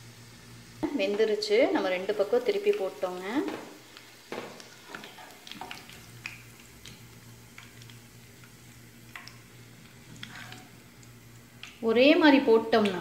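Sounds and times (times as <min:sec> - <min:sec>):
low steady hum: 0:00.0 - 0:13.0
oil popping and crackling: 0:02.1 - 0:11.9.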